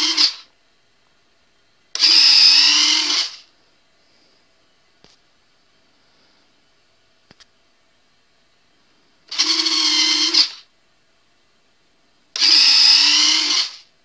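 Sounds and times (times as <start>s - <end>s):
small motor whine: 0.0s - 0.5s, 2.0s - 3.5s, 9.3s - 10.7s, 12.4s - 13.9s.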